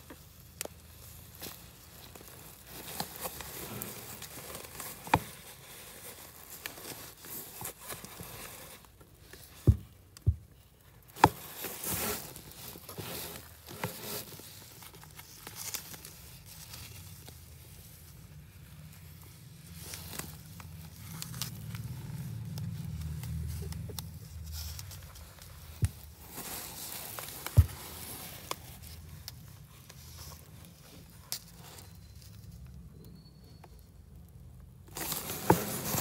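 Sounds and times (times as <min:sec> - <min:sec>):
plastic sack crinkling: 0:00.0 - 0:09.0.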